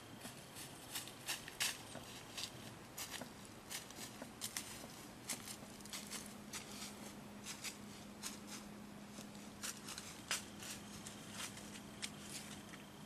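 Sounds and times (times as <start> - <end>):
faint low hum: 0.0 - 13.0
dry ticks and rustles: 0.1 - 13.0.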